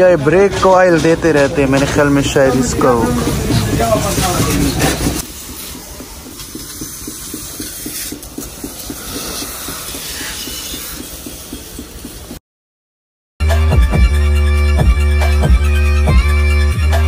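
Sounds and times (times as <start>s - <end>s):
machine running with pulsing hiss: 0.8s - 12.4s.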